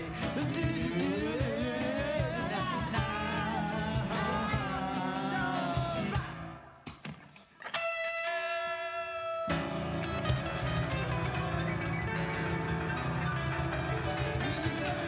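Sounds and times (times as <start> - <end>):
person singing: 0.0 - 6.7, 14.3 - 15.0
live rock band: 0.0 - 15.0.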